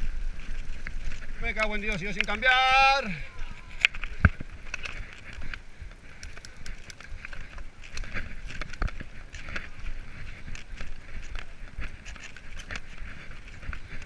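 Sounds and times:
bike tyres on dirt trail: 0:00.0 - 0:14.0
bike rattling and knocking: 0:03.7 - 0:14.0.

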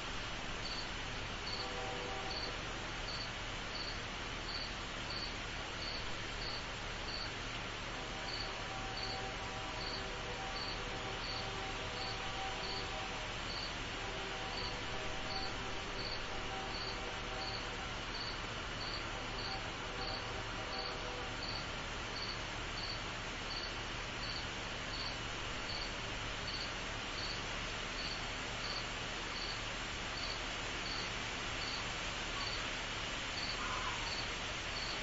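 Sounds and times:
background hiss: 0:00.0 - 0:35.0
cricket chirping: 0:00.6 - 0:02.5, 0:03.1 - 0:07.3, 0:08.3 - 0:09.2, 0:09.8 - 0:10.0, 0:10.6 - 0:13.7, 0:14.5 - 0:21.6, 0:22.2 - 0:25.9, 0:26.5 - 0:27.4, 0:28.0 - 0:28.8, 0:30.2 - 0:31.8, 0:32.4 - 0:32.6, 0:33.4 - 0:35.0.

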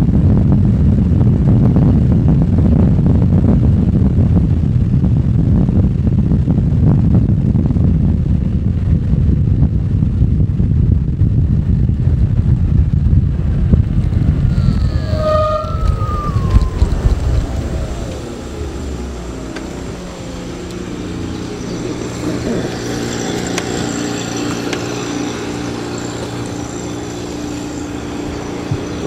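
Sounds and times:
wind rumble on microphone: 0:00.0 - 0:29.0
electric motorcycle motor whine: 0:12.6 - 0:29.0.

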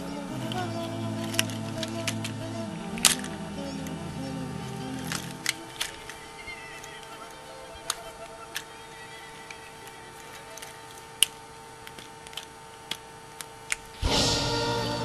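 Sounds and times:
plastic toy parts clicking: 0:00.0 - 0:14.0
loud music: 0:14.0 - 0:15.0.

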